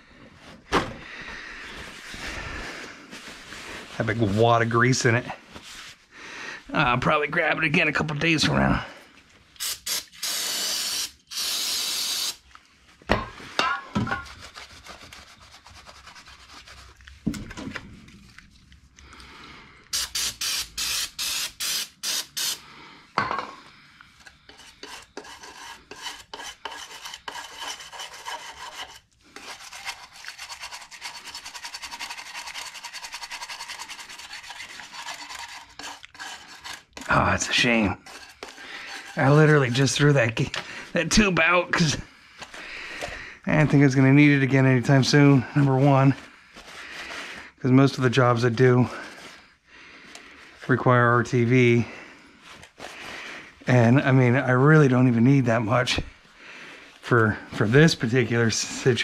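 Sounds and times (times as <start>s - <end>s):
hand scraping on a part: 33.3s - 40.6s.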